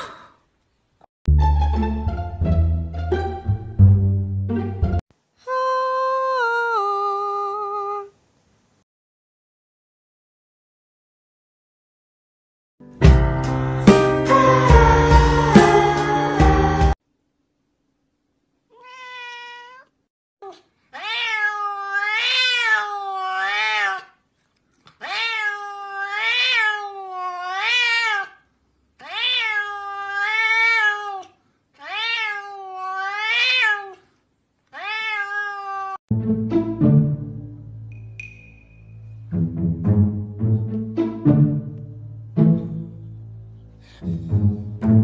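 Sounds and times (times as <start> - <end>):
background music: 1.3 - 5.0, 12.8 - 17.0, 36.1 - 45.0
cat meowing: 18.7 - 24.2, 25.0 - 28.4, 29.0 - 34.0, 34.7 - 36.0.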